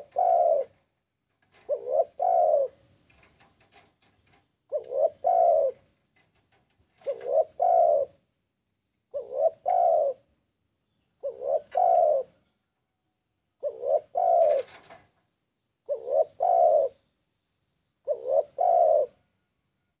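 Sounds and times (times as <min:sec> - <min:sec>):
dove cooing: 0:00.0 - 0:08.3, 0:09.1 - 0:10.3, 0:11.2 - 0:12.4, 0:13.6 - 0:15.0, 0:15.8 - 0:17.0, 0:18.0 - 0:19.3.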